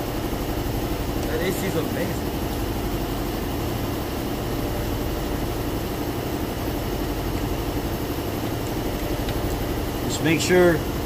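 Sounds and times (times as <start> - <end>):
air conditioner humming: 0.0 - 11.0.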